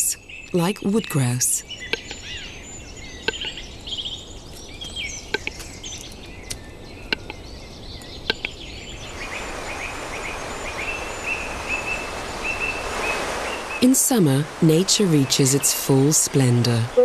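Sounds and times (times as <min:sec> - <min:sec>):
forest birdsong: 0:00.0 - 0:14.0
grouse sharp clicks: 0:00.4 - 0:02.5, 0:03.2 - 0:04.0, 0:04.6 - 0:07.4, 0:08.0 - 0:08.6
mountain stream rushing: 0:09.0 - 0:16.4.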